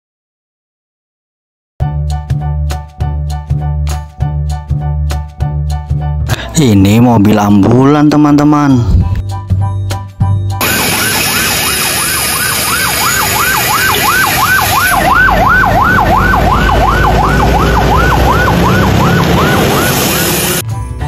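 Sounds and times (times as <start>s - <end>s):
ambulance siren yelping: 10.6s - 20.6s.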